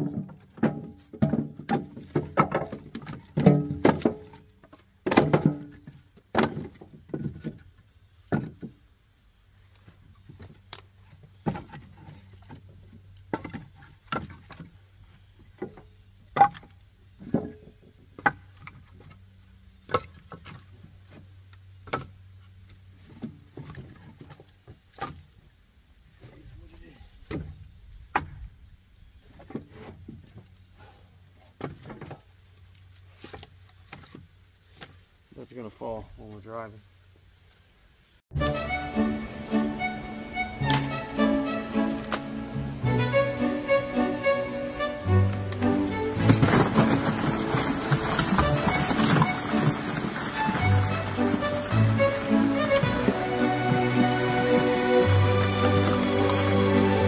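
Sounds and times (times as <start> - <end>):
firewood pieces knocking together: 0.0 - 8.8, 10.2 - 14.8, 15.5 - 19.2, 45.2 - 57.0.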